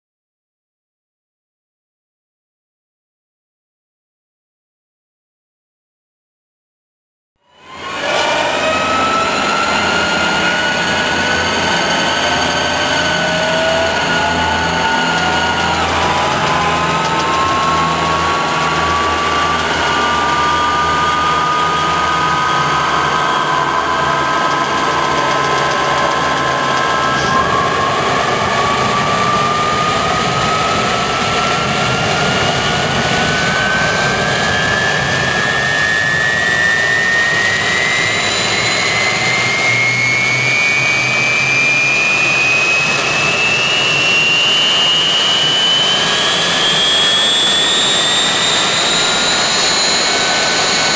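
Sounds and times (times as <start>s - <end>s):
jet engine spooling up: 7.5s - 50.9s.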